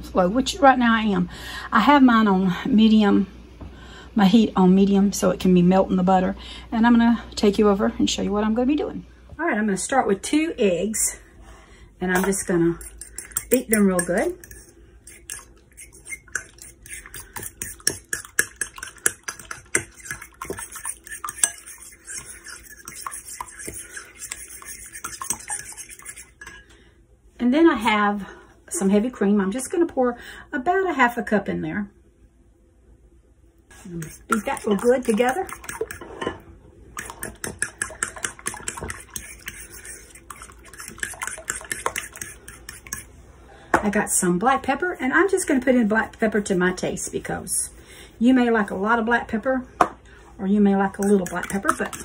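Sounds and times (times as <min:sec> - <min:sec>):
fork clicking against bowl: 0:12.2 - 0:26.6, 0:34.0 - 0:36.0, 0:37.0 - 0:43.0
liquid sloshing: 0:14.4 - 0:26.6, 0:34.0 - 0:36.3, 0:36.9 - 0:43.0.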